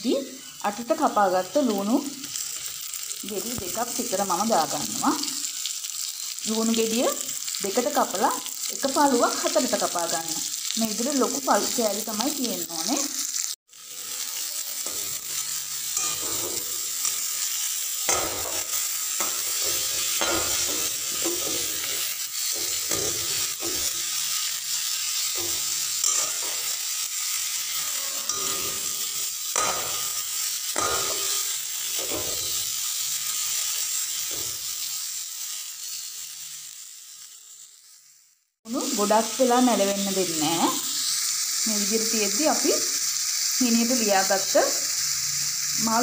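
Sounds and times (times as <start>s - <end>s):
onions sizzling in oil: 0.0s - 46.0s
spoon scraping metal wok: 12.7s - 35.1s.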